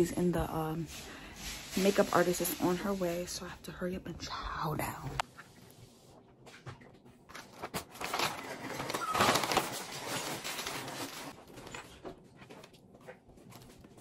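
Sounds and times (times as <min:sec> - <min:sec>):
paper bag and wrappers rustling: 0:00.0 - 0:03.4, 0:07.3 - 0:14.0.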